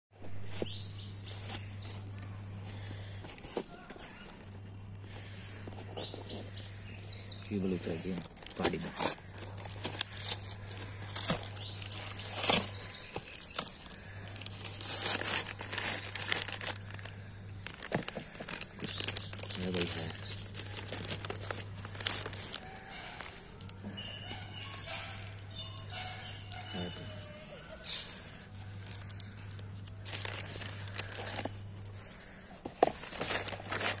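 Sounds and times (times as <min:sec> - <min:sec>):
newspaper rustling and crinkling: 0:00.2 - 0:25.6, 0:26.8 - 0:34.0
cardboard box tearing: 0:08.2 - 0:17.0, 0:32.8 - 0:34.0.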